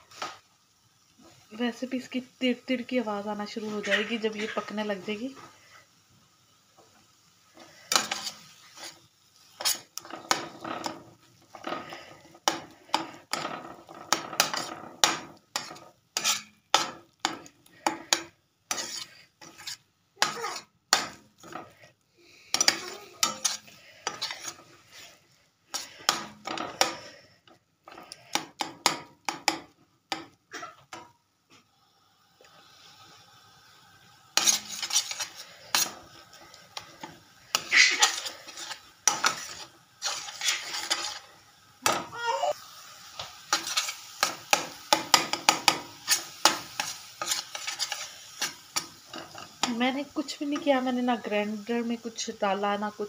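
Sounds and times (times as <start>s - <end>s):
spatula scraping a frying pan: 3.6s - 5.8s, 7.5s - 30.3s, 34.3s - 50.9s.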